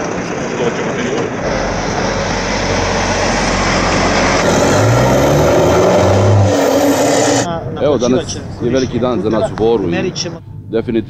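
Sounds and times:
truck driving past: 0.2s - 7.5s.

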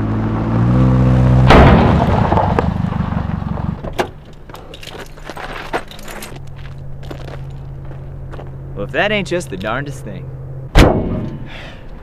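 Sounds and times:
car engine running: 0.0s - 4.2s, 6.0s - 10.7s
loud bang: 1.4s - 3.7s, 10.7s - 11.6s.

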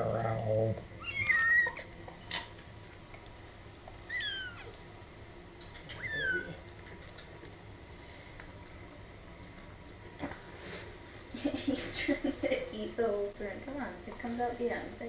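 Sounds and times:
kittens mewing: 1.0s - 1.9s, 4.0s - 4.8s, 5.7s - 6.7s.

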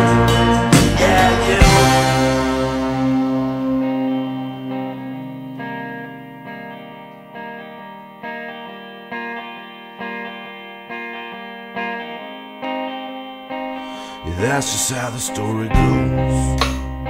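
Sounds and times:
guitar chords ringing: 0.0s - 17.0s.

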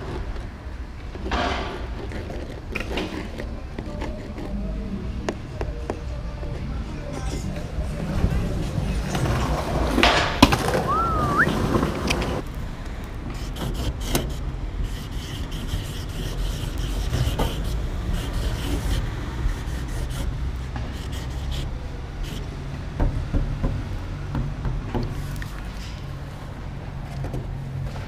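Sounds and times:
marker rubbing on wooden board: 13.4s - 22.5s.

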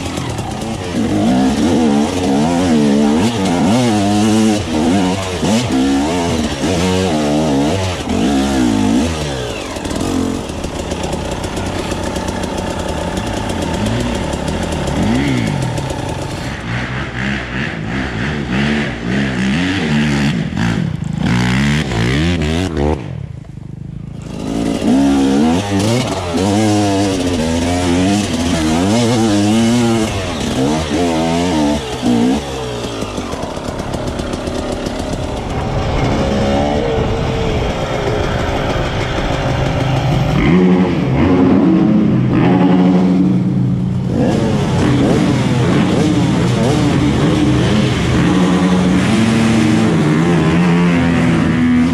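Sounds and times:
dirt bike engine revving: 0.0s - 51.9s
steady rush of noise: 31.8s - 51.9s.

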